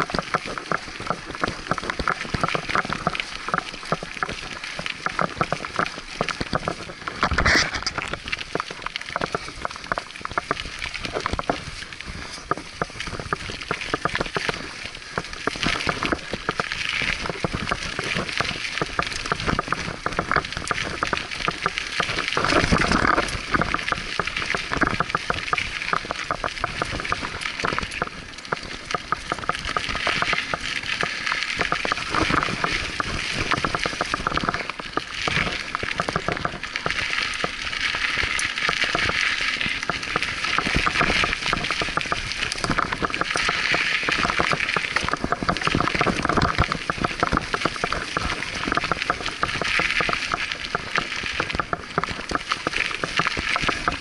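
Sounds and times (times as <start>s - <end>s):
bike rattling: 0.0s - 54.0s
bike tyres crackling over dirt: 0.0s - 54.0s.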